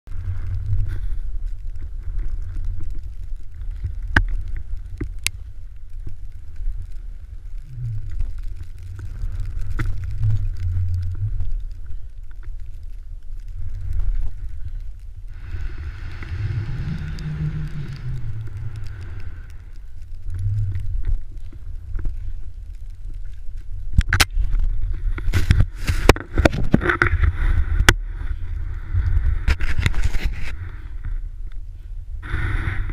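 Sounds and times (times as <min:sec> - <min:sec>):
wind rumble on camera: 0:00.0 - 0:32.9
skis hissing through snow: 0:15.4 - 0:19.6.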